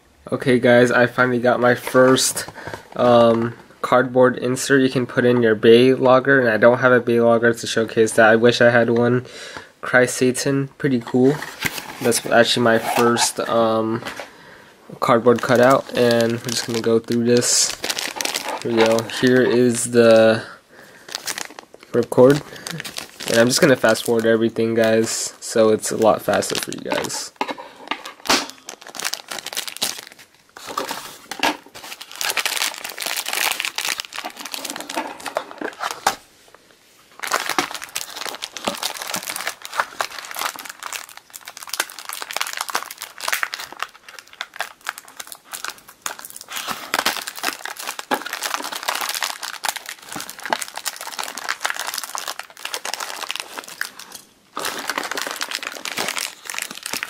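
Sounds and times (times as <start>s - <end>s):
plastic bags crinkling: 11.0s - 36.3s, 37.1s - 57.0s.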